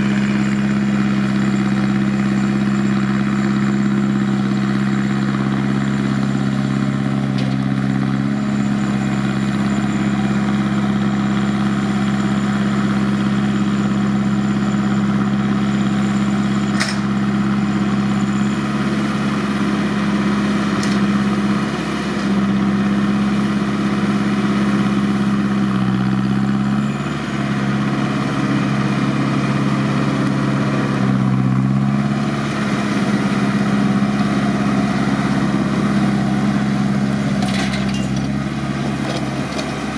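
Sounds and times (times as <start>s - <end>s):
round baler working: 0.0s - 39.9s
tractor diesel engine running: 0.0s - 39.9s.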